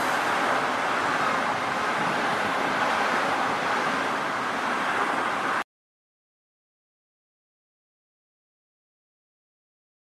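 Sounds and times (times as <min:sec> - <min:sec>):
metro train rolling on tracks: 0:00.0 - 0:05.6
road traffic: 0:00.0 - 0:05.7.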